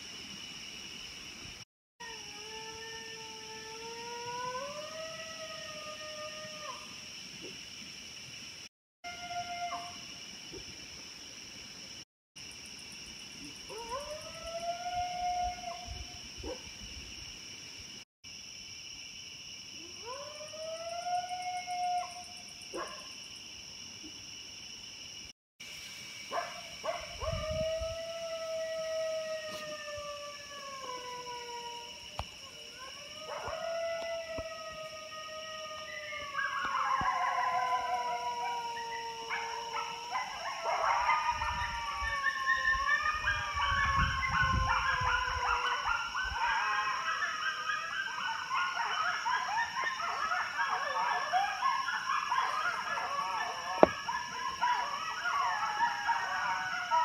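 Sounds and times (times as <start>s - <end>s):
dog howling: 26.3s - 57.0s
dog yelping: 39.3s - 57.0s.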